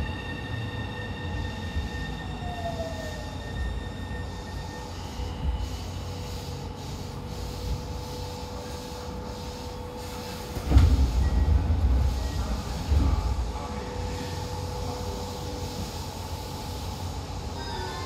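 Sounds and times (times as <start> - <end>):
subway train rumbling: 0.0 - 18.0.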